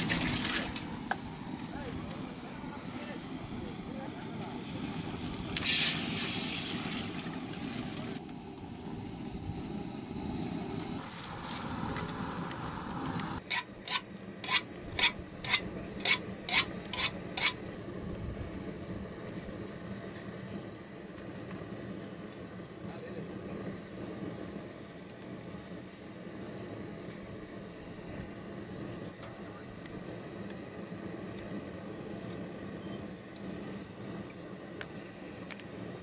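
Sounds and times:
water splashing in a pot: 0:00.0 - 0:01.0.

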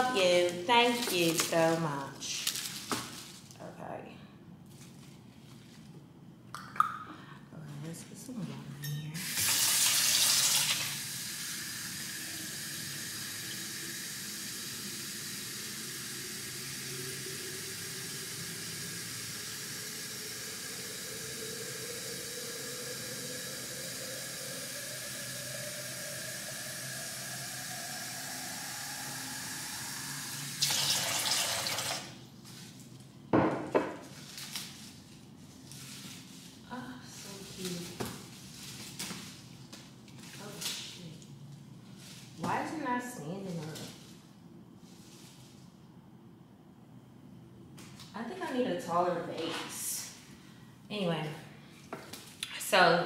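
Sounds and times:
tap water filling a vase: 0:23.4 - 0:32.1.

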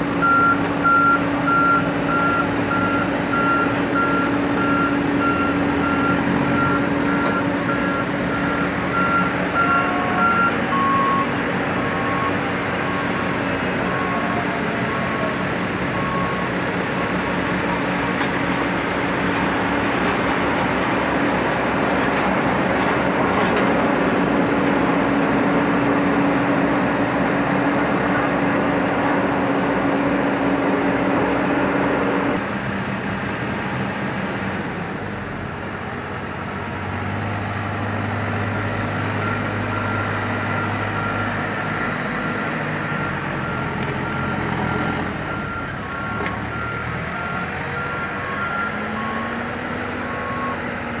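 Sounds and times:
construction machines running: 0:00.0 - 0:51.0
reversing alarm beeping: 0:00.2 - 0:13.2, 0:39.0 - 0:50.7.

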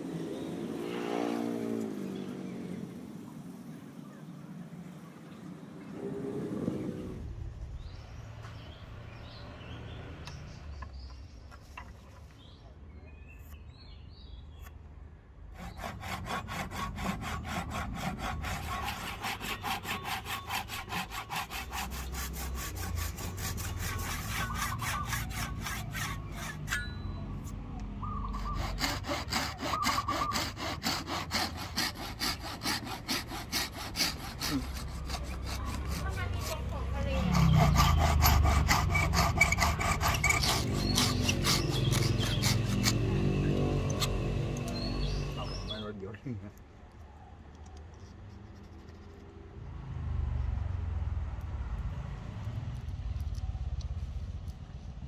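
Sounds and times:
hand saw cutting wood: 0:15.5 - 0:27.6, 0:28.2 - 0:45.9.

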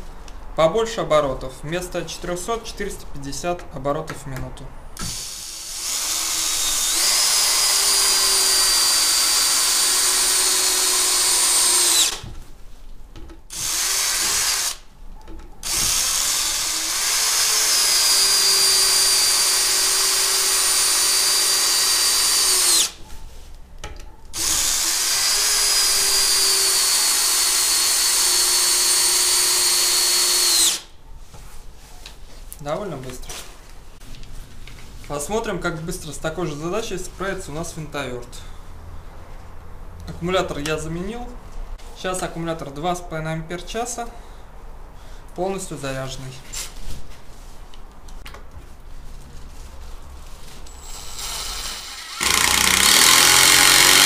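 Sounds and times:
cordless drill whining: 0:05.0 - 0:12.2, 0:13.5 - 0:14.8, 0:15.6 - 0:23.0, 0:24.4 - 0:30.9, 0:50.7 - 0:54.0.

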